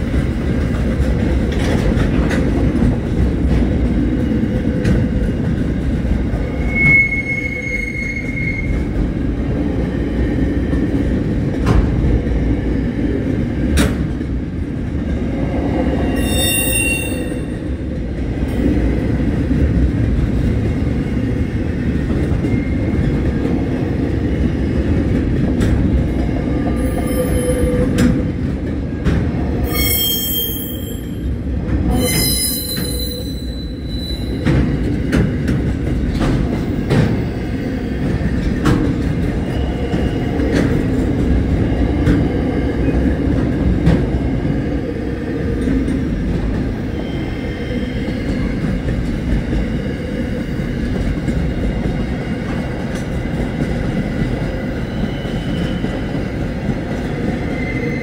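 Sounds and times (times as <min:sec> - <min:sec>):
train wagons rumbling: 0:00.0 - 0:58.0
high wheel squeals: 0:06.5 - 0:08.8, 0:16.1 - 0:17.6, 0:29.7 - 0:31.2, 0:31.9 - 0:34.4.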